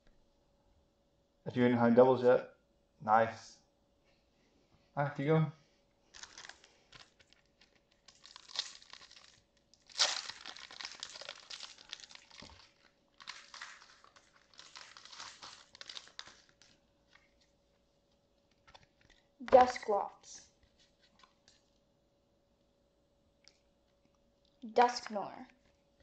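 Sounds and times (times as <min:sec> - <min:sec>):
wrappers crinkling and tearing: 0:06.1 - 0:17.6.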